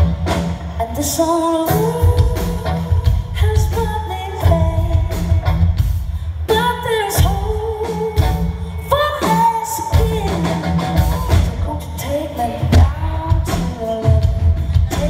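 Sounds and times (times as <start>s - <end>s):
woman singing: 0.6s - 15.0s.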